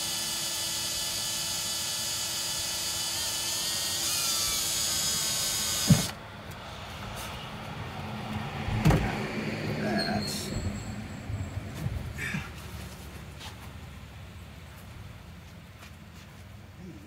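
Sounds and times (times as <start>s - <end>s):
cordless drill cutting metal: 0.0s - 6.2s.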